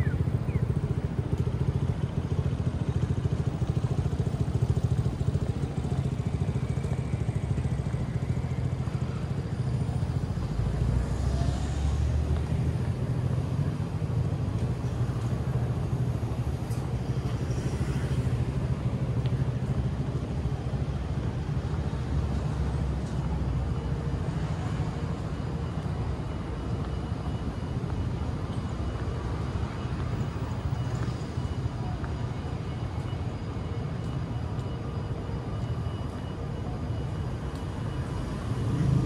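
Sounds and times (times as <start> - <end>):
city street traffic rumble: 0.0 - 39.0.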